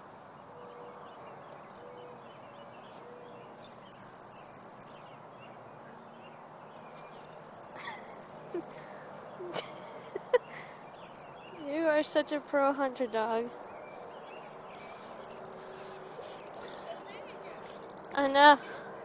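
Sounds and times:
chipmunk trilling chips: 0:01.8 - 0:02.0, 0:03.6 - 0:05.0, 0:07.0 - 0:08.8, 0:10.8 - 0:11.9, 0:13.0 - 0:18.3.

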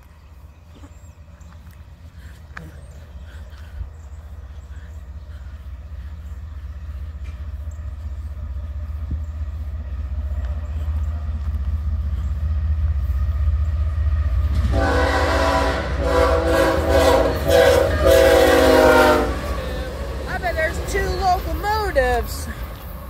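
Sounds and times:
diesel locomotive rumble: 0:00.0 - 0:23.0
train air horn blasts: 0:14.6 - 0:20.0.

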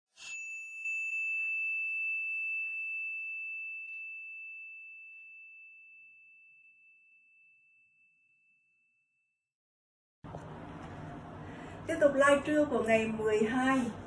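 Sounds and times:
bell-like ding: 0:00.2 - 0:09.0.

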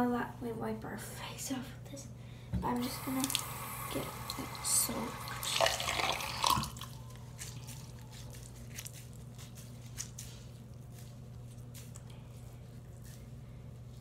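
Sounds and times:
steady low hum: 0:00.0 - 0:14.0
water dripping: 0:02.8 - 0:07.0
wet washcloth squishing: 0:05.2 - 0:14.0.

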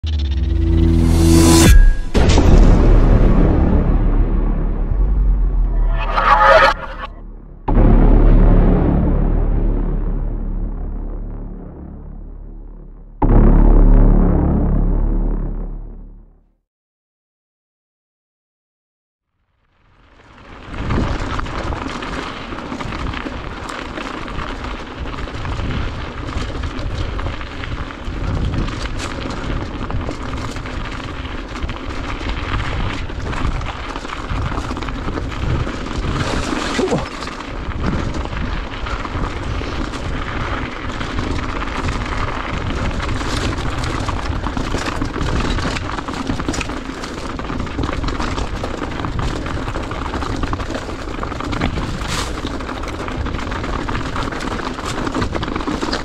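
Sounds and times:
wind rumbling on microphone: 0:20.0 - 0:56.0
bike clattering over rocks: 0:28.3 - 0:56.0.

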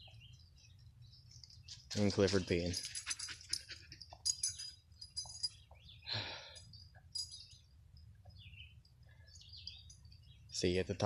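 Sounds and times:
faint bird chirps: 0:04.4 - 0:11.0
breathy exhale: 0:06.1 - 0:06.6.

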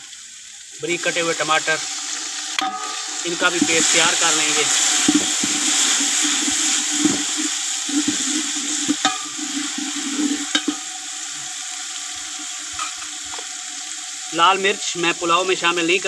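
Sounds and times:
vegetables sizzling in hot oil: 0:00.0 - 0:16.0
metal ladle scraping a pot: 0:04.8 - 0:10.9.

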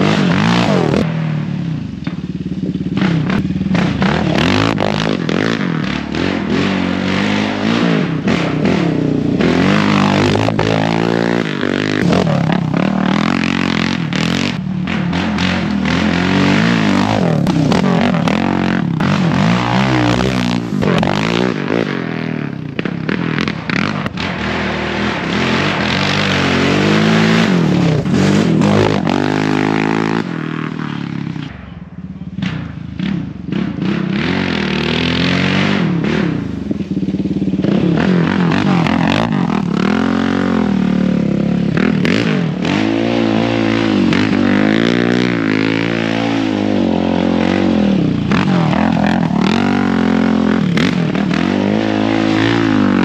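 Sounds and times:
quad engine revving: 0:00.0 - 0:31.6, 0:32.3 - 0:53.0.

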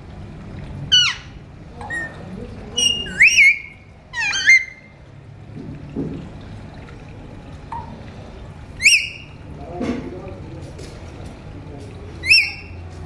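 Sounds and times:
parakeets whistling: 0:00.9 - 0:05.0, 0:08.8 - 0:09.4, 0:12.2 - 0:12.8.

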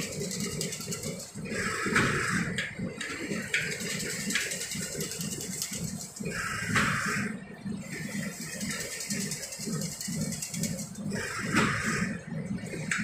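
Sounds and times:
machine rhythmic mechanical beat: 0:00.0 - 0:13.0.

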